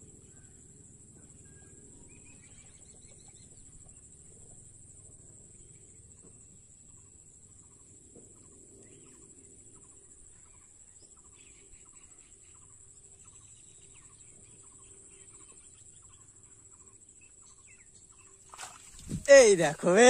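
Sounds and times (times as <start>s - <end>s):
steady high hiss: 18.6s - 20.0s.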